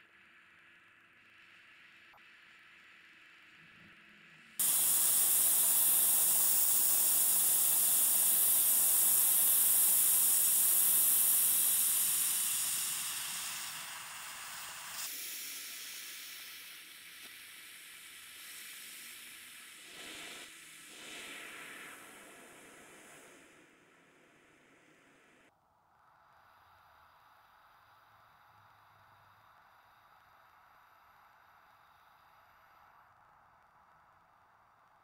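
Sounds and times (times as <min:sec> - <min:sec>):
brazing torch hissing: 0:04.6 - 0:16.6.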